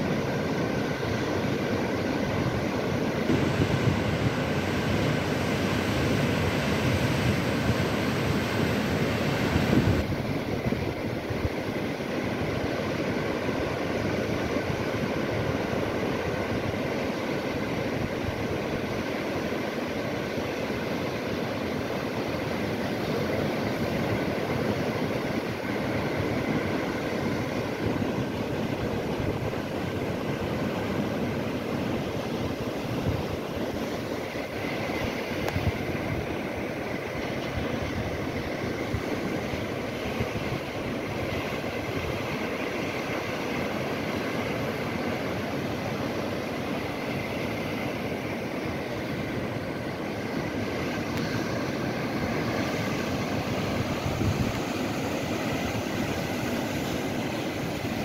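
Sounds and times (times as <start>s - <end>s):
sea waves washing onto shore: 0.0s - 58.0s.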